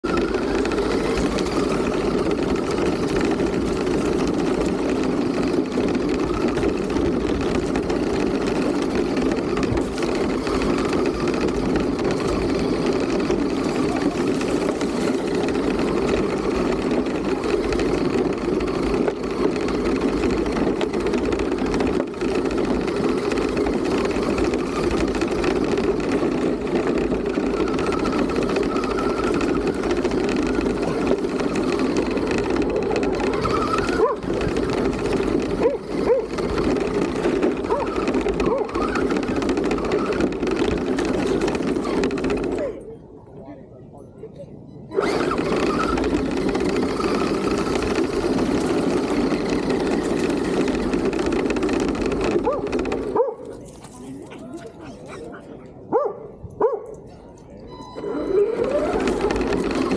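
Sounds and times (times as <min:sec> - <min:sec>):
rc car motor whir: 0:00.0 - 0:42.8, 0:44.9 - 0:53.6, 0:57.8 - 0:59.9.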